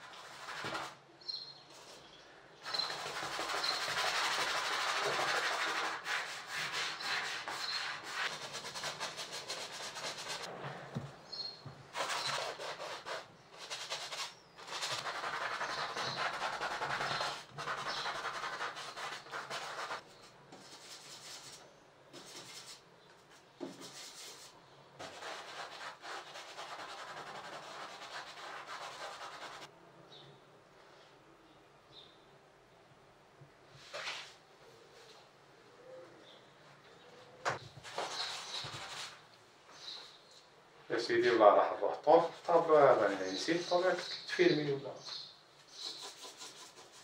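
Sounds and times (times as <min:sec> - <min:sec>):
paintbrush scraping on wooden palette: 0:01.7 - 0:21.6, 0:37.8 - 0:39.2, 0:42.1 - 0:44.1, 0:45.1 - 0:47.0.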